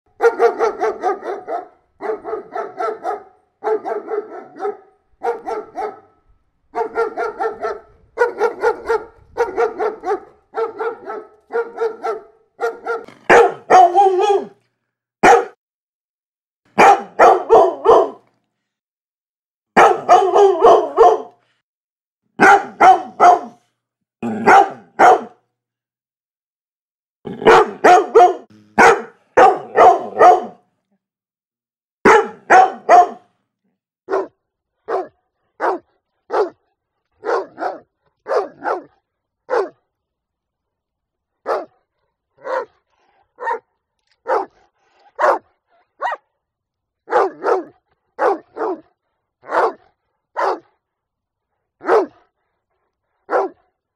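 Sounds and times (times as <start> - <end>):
dog barking: 0.1 - 14.6, 15.2 - 15.6, 16.7 - 18.3, 19.8 - 21.5, 22.4 - 23.6, 24.2 - 25.4, 27.3 - 30.7, 32.0 - 33.3, 34.1 - 39.9, 41.4 - 46.4, 47.0 - 50.9, 51.8 - 53.8.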